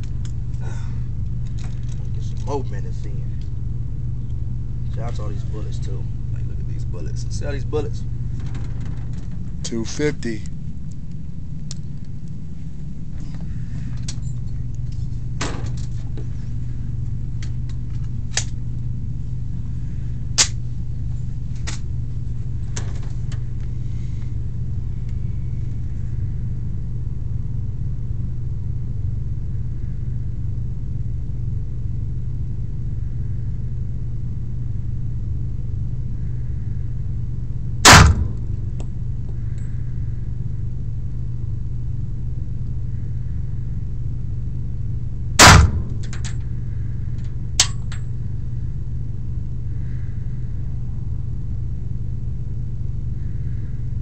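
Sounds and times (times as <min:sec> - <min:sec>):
low hum: 0:00.0 - 0:54.0
pistol shots: 0:37.8 - 0:38.4, 0:45.4 - 0:46.0.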